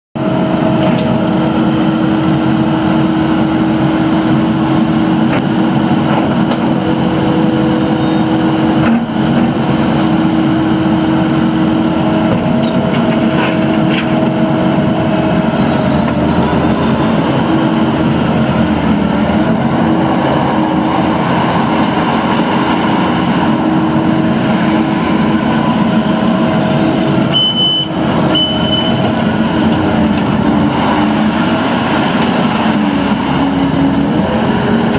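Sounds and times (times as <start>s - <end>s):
diesel engine running: 0.2s - 34.9s.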